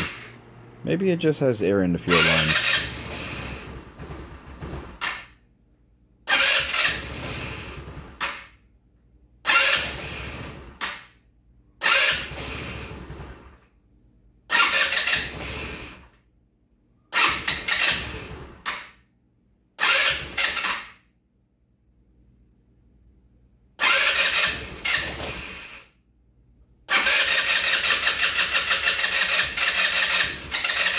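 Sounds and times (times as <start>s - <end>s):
scooter engine cranking: 0.0s - 0.4s, 2.1s - 5.4s, 6.3s - 8.6s, 9.4s - 11.2s, 11.8s - 13.6s, 14.5s - 16.2s, 17.1s - 19.0s, 19.8s - 21.0s, 23.8s - 25.9s, 26.9s - 30.9s.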